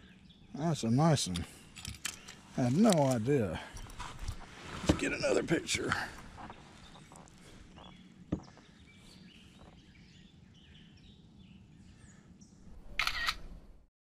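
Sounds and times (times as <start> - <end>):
faint bird chirps: 6.3 - 13.4.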